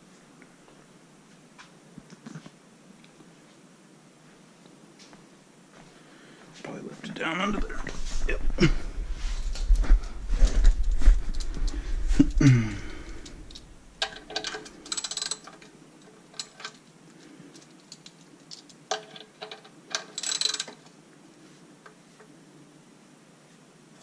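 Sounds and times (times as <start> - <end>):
ratchet wrench clicking: 13.5 - 15.6, 17.6 - 20.8.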